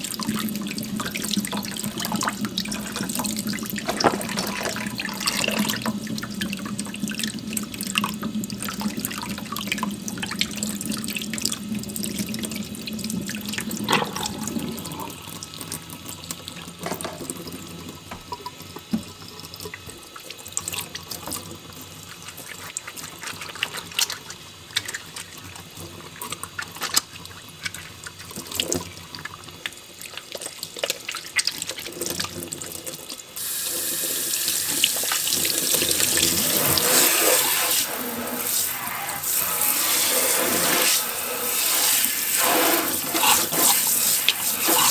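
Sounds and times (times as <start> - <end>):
tap running into sink: 1.0 - 6.3, 13.6 - 15.7, 16.5 - 19.3, 33.6 - 38.6
hands rubbing egg: 38.4 - 44.9.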